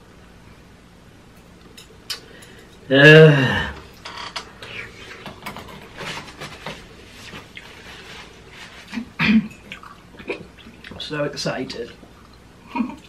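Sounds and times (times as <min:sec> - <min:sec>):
slurping and chewing: 0:07.2 - 0:11.0.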